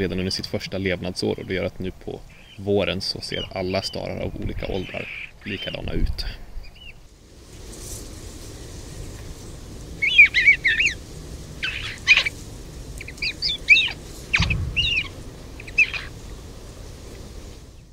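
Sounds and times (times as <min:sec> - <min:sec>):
starling chirping: 0:01.4 - 0:05.8, 0:06.6 - 0:07.0, 0:09.9 - 0:11.0, 0:11.6 - 0:16.6
thump on microphone: 0:14.4 - 0:15.2.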